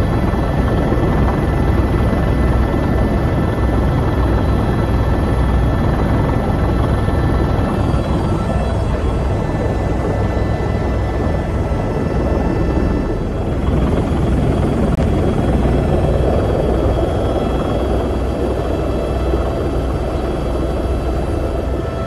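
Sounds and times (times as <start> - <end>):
helicopter engine and rotor drone: 0.0 - 22.0
high whining tones: 6.6 - 14.9.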